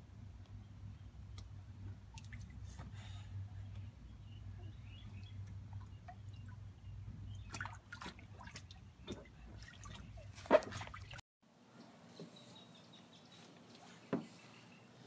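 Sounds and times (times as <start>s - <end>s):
steady low hum: 0.0s - 10.2s
light drips and taps: 1.3s - 3.0s, 4.7s - 11.2s
bare feet on wet vinyl: 5.0s - 11.2s.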